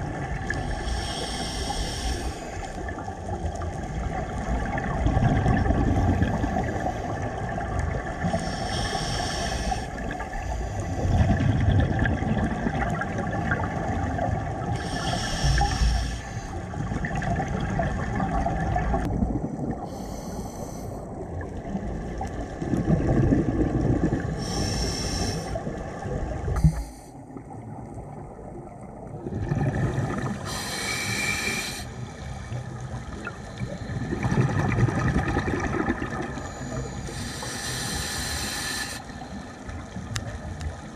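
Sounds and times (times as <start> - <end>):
exhaled bubbles gurgling: 0.0 - 40.9
regulator inhalation hiss: 0.7 - 2.7, 8.3 - 10.9, 14.8 - 16.5, 19.9 - 21.0, 24.4 - 25.6, 30.4 - 32.2, 36.7 - 39.4.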